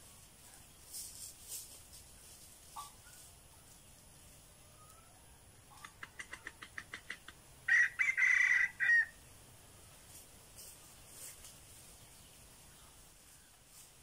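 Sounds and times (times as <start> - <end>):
rooster crowing: 7.7 - 9.2.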